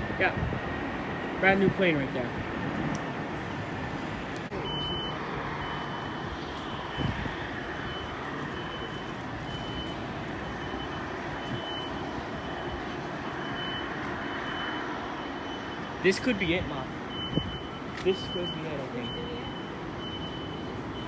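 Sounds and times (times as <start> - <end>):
airport background noise: 0.0 - 21.0
vehicle reversing beeper: 4.5 - 21.0.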